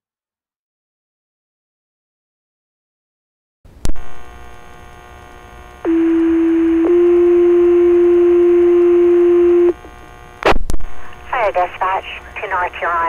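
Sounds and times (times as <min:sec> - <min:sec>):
radio click and hiss: 0:09.7 - 0:13.0.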